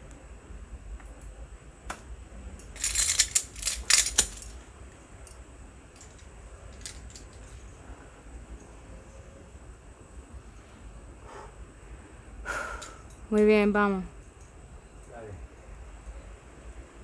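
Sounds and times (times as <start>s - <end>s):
climbing carabiners clinking: 2.7s - 4.6s, 6.0s - 7.6s.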